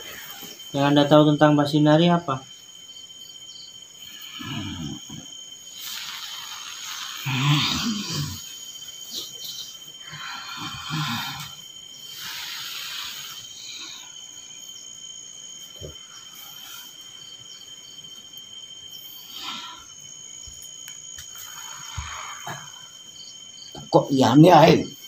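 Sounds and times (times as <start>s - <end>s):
crickets chirping: 0.0s - 25.0s
breathy exhalations: 4.1s - 14.4s, 19.0s - 20.1s, 21.2s - 23.0s.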